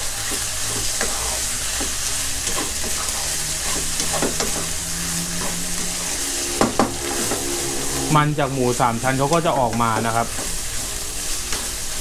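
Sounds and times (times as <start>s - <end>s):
meat sizzling in a wok: 0.0s - 12.0s
wooden spatula scraping a wok: 0.0s - 12.0s.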